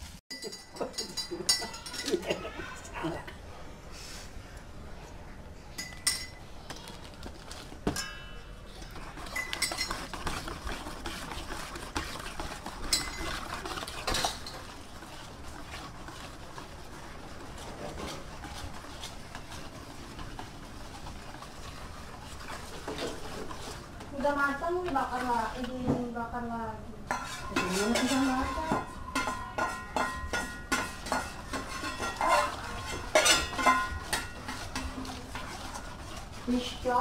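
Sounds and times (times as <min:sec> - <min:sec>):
metal utensils clattering on dishes: 0:00.3 - 0:02.6, 0:07.9 - 0:10.7, 0:11.9 - 0:14.8, 0:27.1 - 0:36.7.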